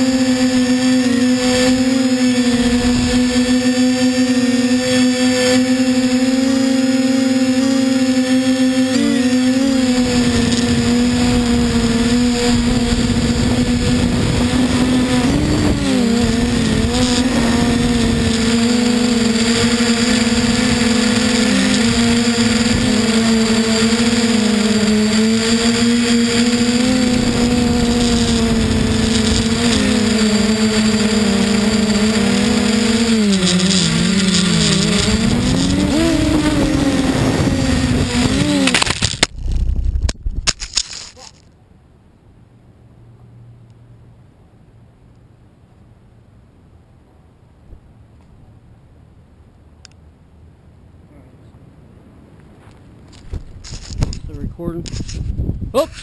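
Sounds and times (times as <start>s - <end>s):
drone propellers humming: 0.0s - 46.4s, 47.5s - 56.0s
wind on microphone: 1.2s - 4.0s, 9.6s - 24.3s, 26.0s - 40.6s, 53.2s - 56.0s
drone crashing into tree: 32.4s - 41.4s.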